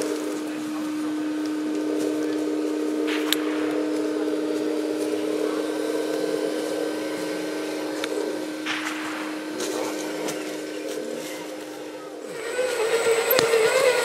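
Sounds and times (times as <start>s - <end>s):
electric motor whine: 0.0s - 14.0s
sharp click: 3.1s - 3.8s.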